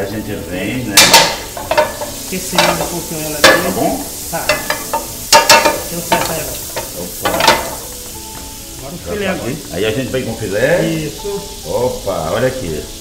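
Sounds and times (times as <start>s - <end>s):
butter sizzling in a frying pan: 0.0s - 13.0s
utensil clinking against pan: 1.0s - 8.0s.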